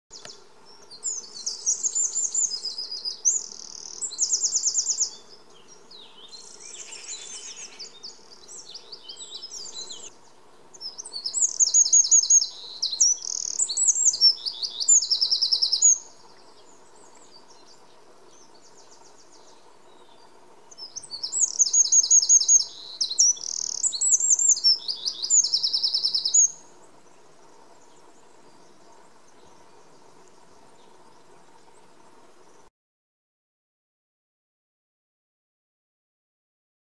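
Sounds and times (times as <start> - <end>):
wren singing trills: 0.1 - 10.1, 10.7 - 26.6.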